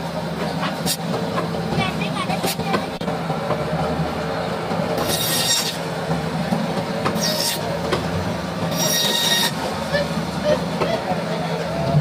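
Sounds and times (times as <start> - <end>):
saw blade screeching through fish: 5.1 - 5.7, 8.7 - 9.5.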